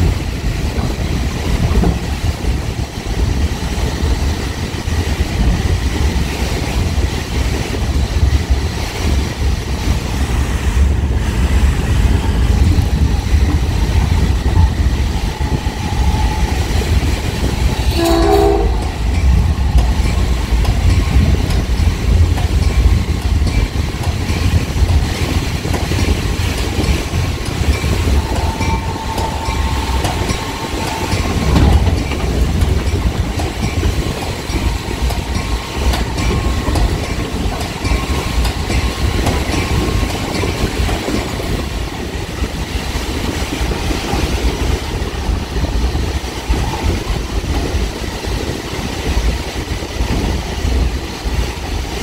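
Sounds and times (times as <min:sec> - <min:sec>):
train wheels rumbling on rail: 0:00.0 - 0:52.0
train horn blast: 0:15.2 - 0:19.8, 0:28.1 - 0:32.0.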